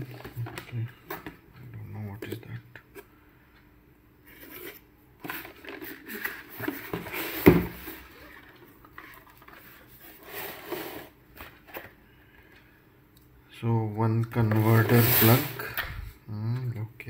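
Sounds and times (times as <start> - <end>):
cardboard rustling and scraping: 4.3 - 11.9, 14.4 - 15.7.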